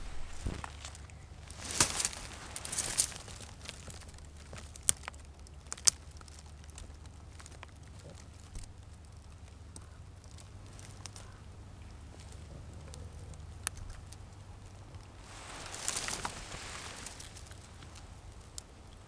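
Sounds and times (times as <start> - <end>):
jacket rustling: 0.0 - 3.6, 15.2 - 18.1
binoculars handling: 15.2 - 18.4.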